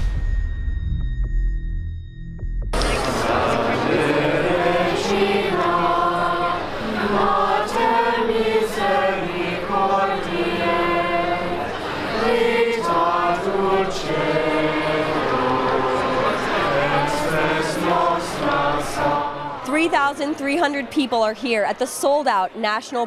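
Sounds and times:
group of people singing: 0:02.8 - 0:21.1.

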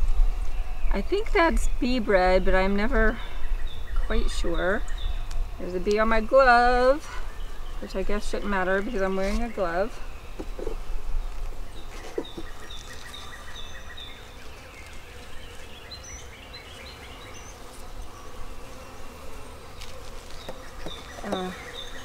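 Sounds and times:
bees buzzing: 0:00.0 - 0:22.0
light knocks on hive: 0:20.4 - 0:21.6.

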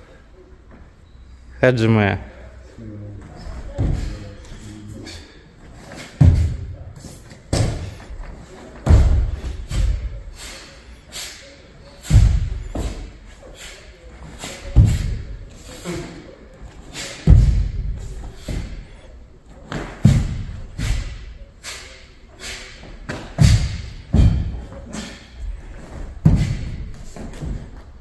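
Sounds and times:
bare feet stamping on wooden floor: 0:26.2 - 0:27.8.

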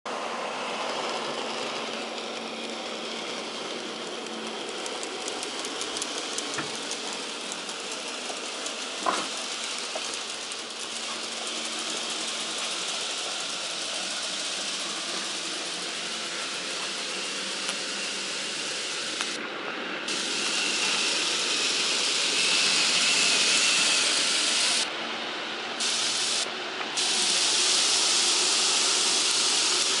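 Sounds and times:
model train motor whirring: 0:00.4 - 0:19.4, 0:20.0 - 0:25.0, 0:25.7 - 0:30.0
loud even hiss: 0:20.1 - 0:24.8, 0:25.8 - 0:30.0.

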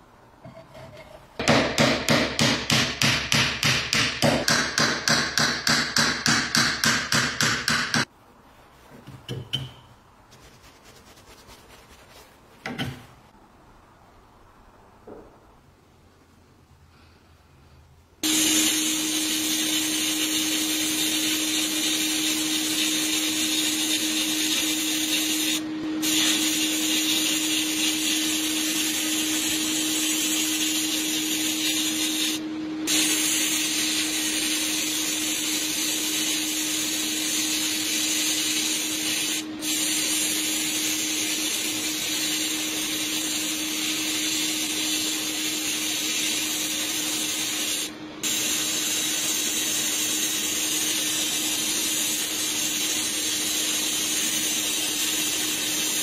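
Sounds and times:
sandblasting gun hissing: 0:18.2 - 0:56.0.

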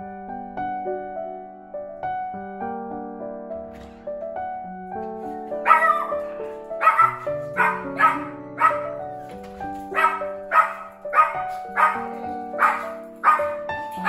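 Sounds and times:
background music with sustained notes: 0:00.0 - 0:14.0
dog barking in sharp yips: 0:05.7 - 0:06.2, 0:06.8 - 0:08.9, 0:09.9 - 0:13.7.

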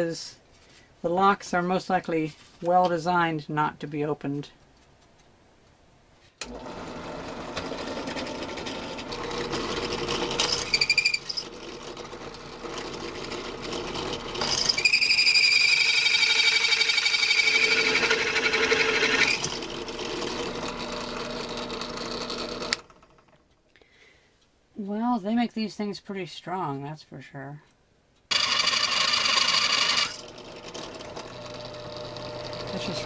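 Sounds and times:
drill press running: 0:06.4 - 0:23.4, 0:28.3 - 0:33.0
drill bit screeching on metal: 0:10.4 - 0:11.5, 0:14.4 - 0:19.5, 0:28.3 - 0:30.3.

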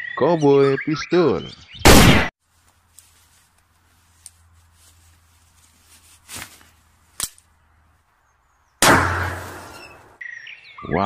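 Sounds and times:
faint cracks: 0:02.7 - 0:04.4
revolver shot: 0:08.8 - 0:09.9.

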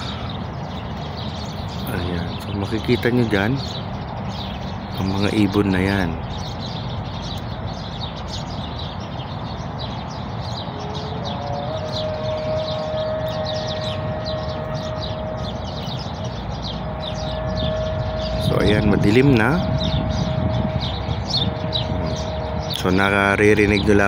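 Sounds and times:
flock of birds chirping: 0:00.0 - 0:24.0
steady siren-like tone: 0:10.7 - 0:24.0.

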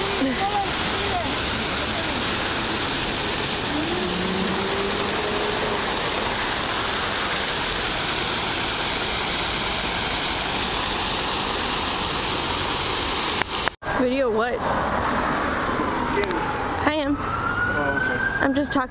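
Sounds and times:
fountain water splashing: 0:00.0 - 0:13.8.

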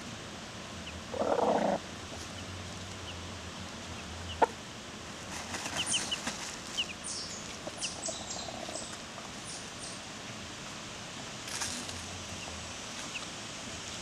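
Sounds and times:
hens chirping: 0:00.8 - 0:04.6, 0:05.2 - 0:10.4
hens rustling in dry dirt: 0:05.1 - 0:14.0.

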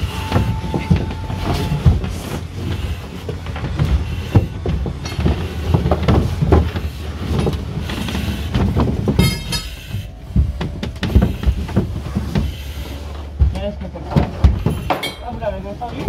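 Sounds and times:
high squeak: 0:00.0 - 0:02.2
gear knocking against boards: 0:00.0 - 0:16.0
steady low rumble: 0:00.0 - 0:16.0
thuds and scraping on plywood: 0:00.0 - 0:16.0.

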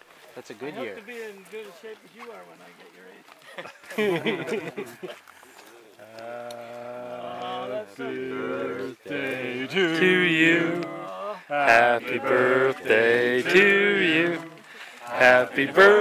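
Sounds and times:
man singing long notes: 0:06.0 - 0:16.0.

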